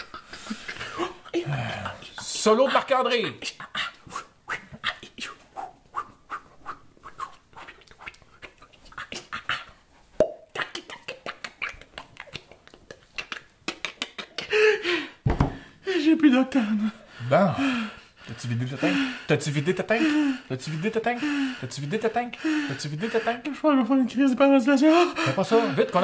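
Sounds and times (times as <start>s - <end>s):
man beatboxing: 3.4s - 14.5s.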